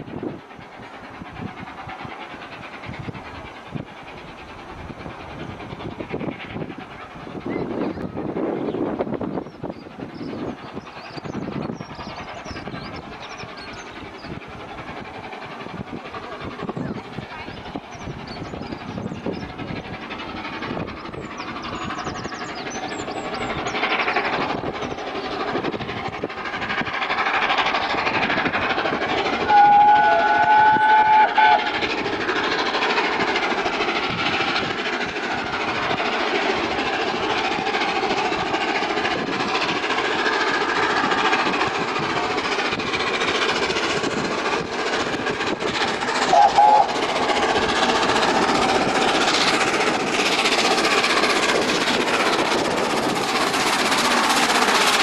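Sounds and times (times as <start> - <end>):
steam locomotive and train approaching: 0.0 - 55.0
steam locomotive whistle: 29.4 - 31.8, 46.3 - 47.0.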